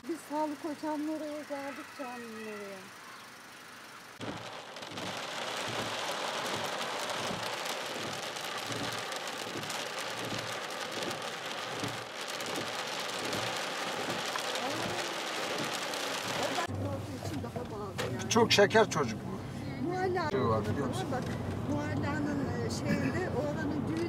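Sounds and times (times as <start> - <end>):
crackling hiss: 2.8 - 17.4.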